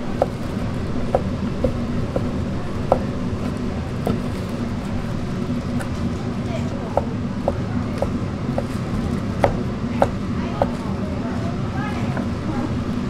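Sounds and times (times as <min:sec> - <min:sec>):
knife chopping on wooden board: 0:00.0 - 0:04.4, 0:06.9 - 0:08.8, 0:09.4 - 0:10.8
low background hum: 0:00.0 - 0:13.0.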